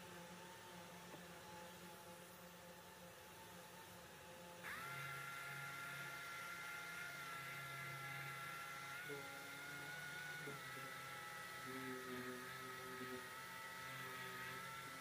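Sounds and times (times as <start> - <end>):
orbital sander whine: 4.2 - 15.0.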